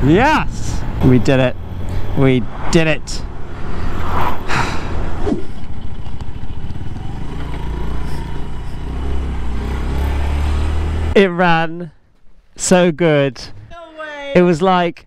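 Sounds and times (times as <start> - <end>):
motorcycle engine running low: 5.5 - 10.0.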